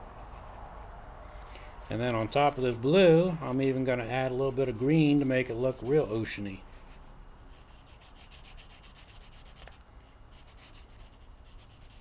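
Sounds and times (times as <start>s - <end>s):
crayon scratching on paper: 1.4s - 5.6s, 7.5s - 12.0s.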